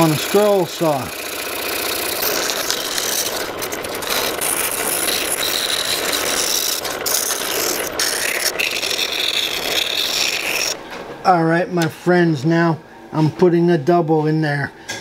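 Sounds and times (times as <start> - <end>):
scroll saw running: 0.0 - 10.8
sandpaper rubbing against wood: 2.0 - 10.8.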